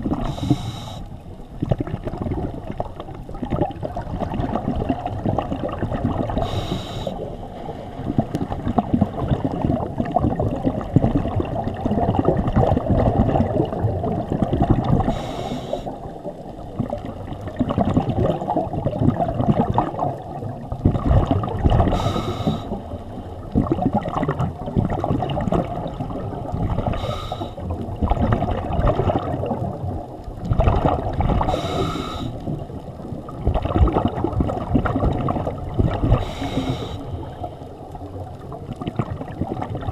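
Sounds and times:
bubbling exhaled air: 0.0s - 39.9s
regulator inhalation hiss: 0.2s - 1.1s, 6.4s - 7.3s, 15.1s - 16.0s, 21.9s - 22.8s, 27.0s - 27.6s, 31.5s - 32.4s, 36.2s - 37.2s.

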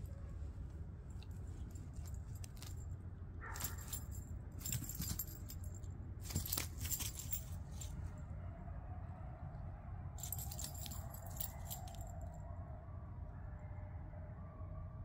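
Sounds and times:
steady low rumble: 0.0s - 15.0s
dog collar tags jingling: 1.1s - 8.0s, 10.2s - 12.2s.

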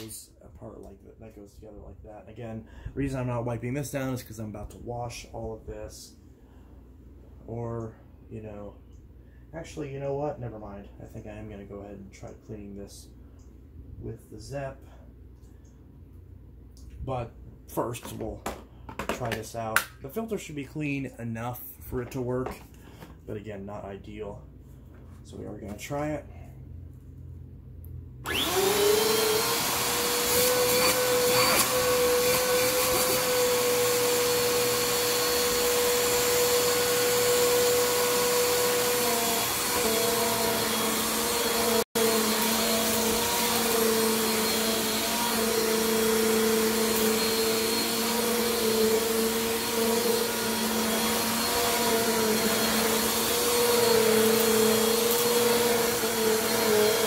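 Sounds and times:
vacuum cleaner motor whine: 28.2s - 57.0s.

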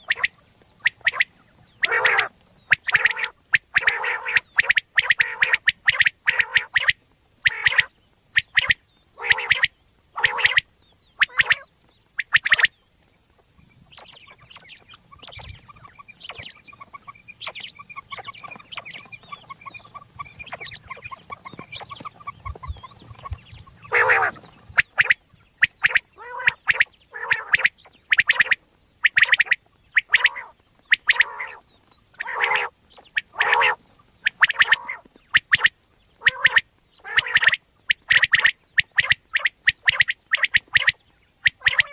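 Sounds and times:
quail calling: 0.0s - 41.9s
faint chattering: 13.3s - 31.6s.

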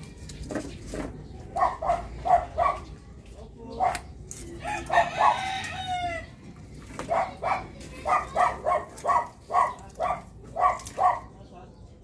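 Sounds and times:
dog barking: 1.5s - 2.9s, 3.7s - 4.1s, 7.0s - 11.4s
rooster crowing: 4.6s - 6.3s.

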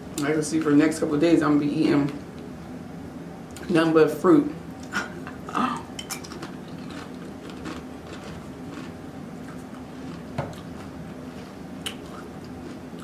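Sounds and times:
chewing crunchy chip: 5.9s - 13.0s.

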